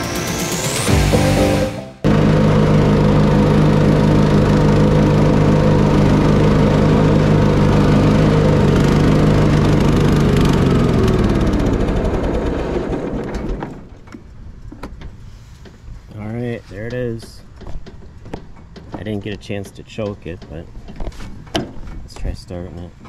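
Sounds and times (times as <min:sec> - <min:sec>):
mower engine running and stalling: 0:02.0 - 0:14.8.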